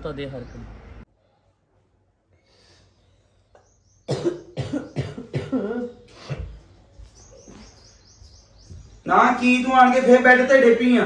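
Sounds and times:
woman coughing: 0:04.1 - 0:06.5.

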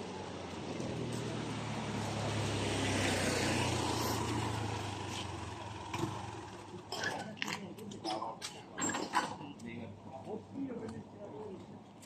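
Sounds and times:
motor scooter riding past: 0:00.6 - 0:06.8.

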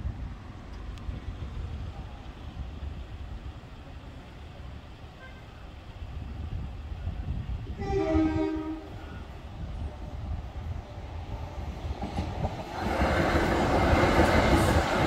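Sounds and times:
electric train rumbling: 0:00.0 - 0:15.0
train horn: 0:07.7 - 0:09.2.

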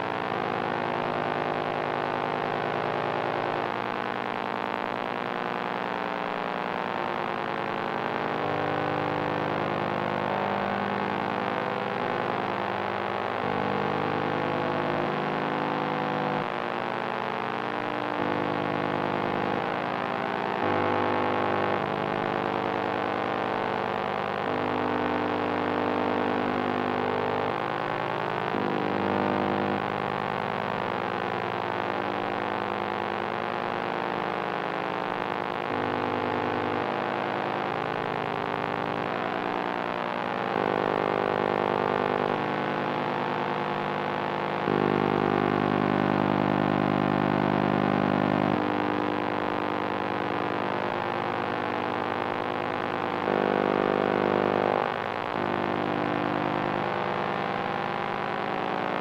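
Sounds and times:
distorted electronic noise drone: 0:00.0 - 0:59.0.

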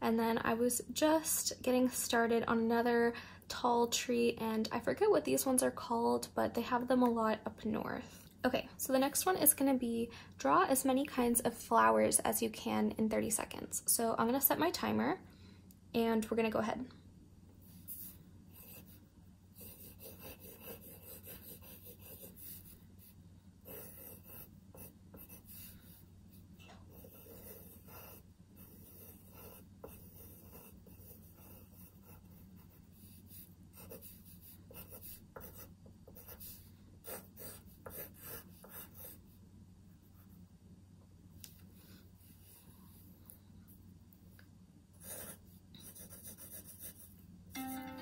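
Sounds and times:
pencil scratching on paper: 0:17.8 - 0:26.0, 0:26.8 - 0:39.2, 0:45.0 - 0:47.1.

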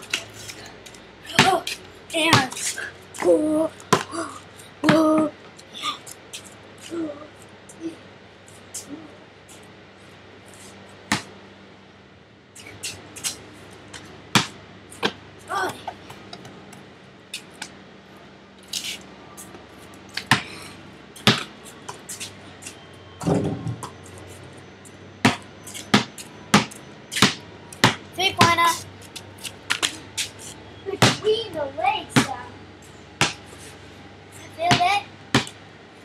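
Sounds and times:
basketball bouncing on pavement: 0:01.2 - 0:04.2, 0:04.8 - 0:05.3, 0:11.0 - 0:11.4, 0:13.2 - 0:16.9, 0:20.1 - 0:20.6, 0:21.2 - 0:22.1, 0:25.2 - 0:28.8, 0:31.0 - 0:32.5, 0:33.2 - 0:33.6, 0:34.4 - 0:35.6.

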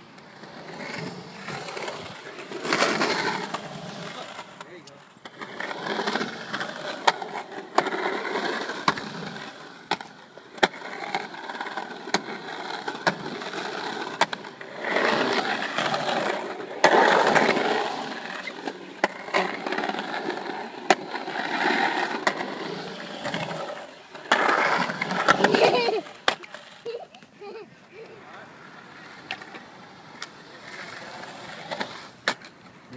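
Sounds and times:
skateboard wheels rolling on concrete: 0:00.0 - 0:32.9
skateboard clacks: 0:00.1 - 0:27.3, 0:28.0 - 0:32.9.

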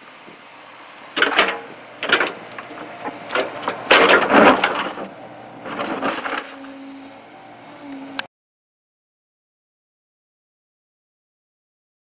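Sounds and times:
excavator engine running: 0:00.0 - 0:08.3
excavator bucket crunching soil: 0:00.2 - 0:07.1.

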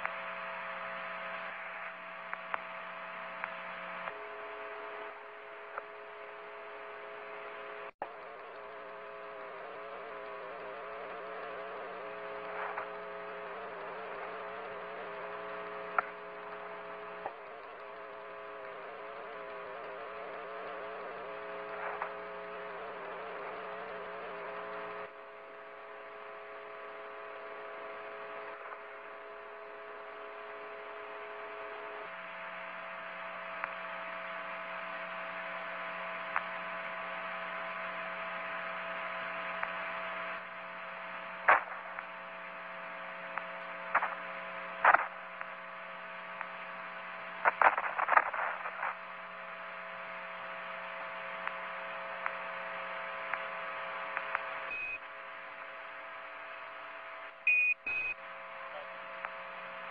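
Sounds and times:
electronic hum: 0:00.0 - 0:59.9
static hiss: 0:00.0 - 0:59.9
sharp crackles: 0:37.4 - 0:55.0
held tones: 0:57.5 - 0:58.1.

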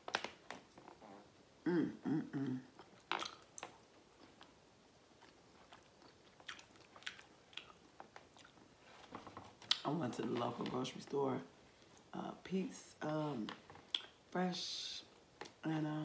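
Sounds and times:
person humming: 0:01.6 - 0:02.7
person chewing food: 0:02.3 - 0:09.9, 0:13.6 - 0:14.2
wet mouth smacks and clicks: 0:02.8 - 0:03.8.

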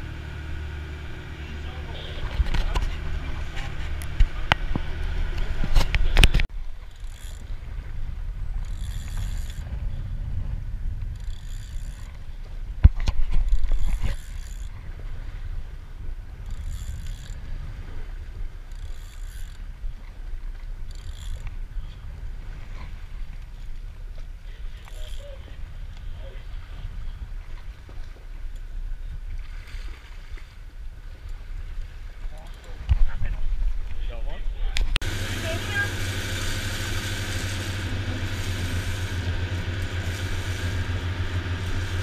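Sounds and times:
boat engine rumble: 0:00.0 - 0:42.0
rushing water: 0:35.0 - 0:42.0.

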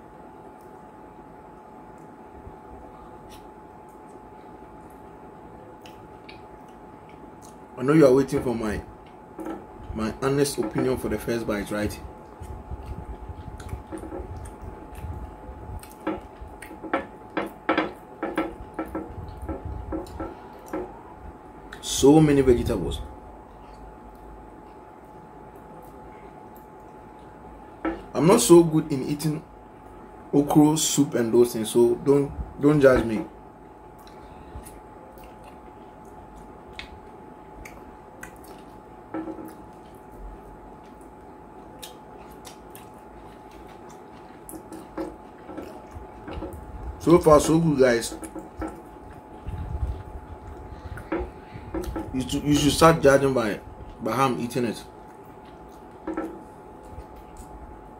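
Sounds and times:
wet chewing and lip smacks: 0:03.2 - 0:07.7, 0:12.2 - 0:20.9, 0:33.9 - 0:47.0, 0:48.1 - 0:52.2, 0:54.9 - 0:57.9
soft wet clicks: 0:34.0 - 0:38.8.

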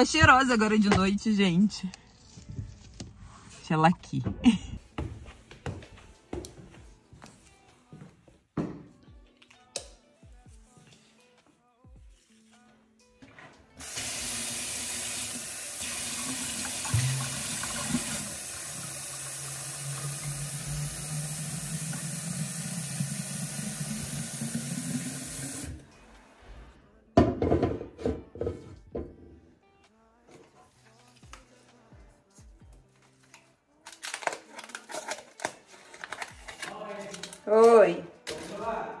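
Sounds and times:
tap water filling glass bottle: 0:15.8 - 0:25.7.

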